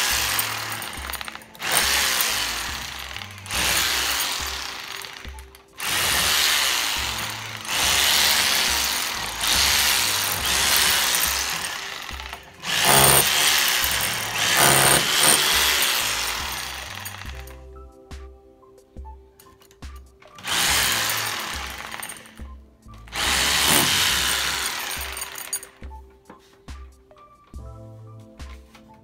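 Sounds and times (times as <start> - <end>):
rotary hammer drill boring into concrete: 0.0 - 17.5, 20.4 - 22.5, 23.1 - 25.8.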